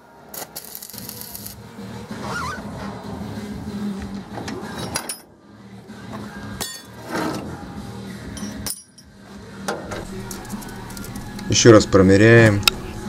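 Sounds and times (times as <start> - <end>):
welding arc crackling: 0.3 - 2.0, 10.0 - 13.0
metallic clinks: 8.3 - 9.2.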